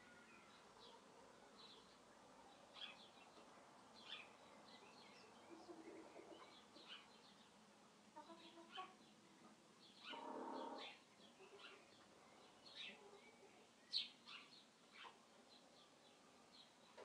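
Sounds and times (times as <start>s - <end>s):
small birds chirping: 0.0s - 7.6s, 8.2s - 17.0s
chickens clucking: 5.4s - 6.9s, 8.2s - 9.0s, 10.1s - 11.8s.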